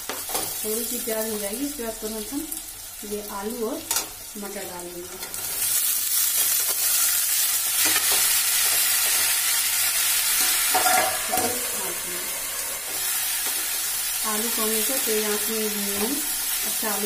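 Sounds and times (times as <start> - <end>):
vegetables sizzling in hot oil: 0.0 - 17.0
steel lid clinking onto pan: 10.7 - 11.6.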